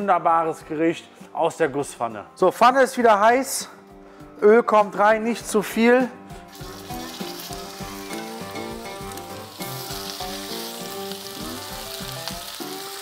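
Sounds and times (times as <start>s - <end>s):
oil sizzling and spitting in pan: 6.4s - 13.0s.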